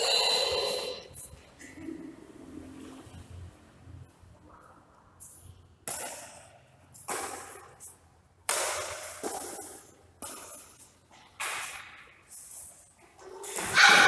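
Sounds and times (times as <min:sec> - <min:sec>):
badminton racket hitting shuttlecock: 0:05.8 - 0:07.8, 0:08.4 - 0:12.5.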